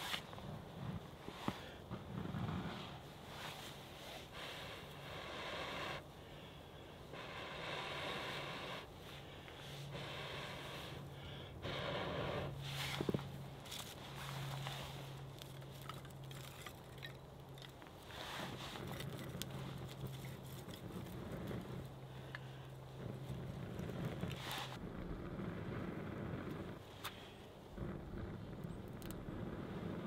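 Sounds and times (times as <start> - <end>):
kindling crackling: 0.0 - 30.0
rustling of burning sticks: 0.0 - 30.0
steady low hum: 0.0 - 30.0.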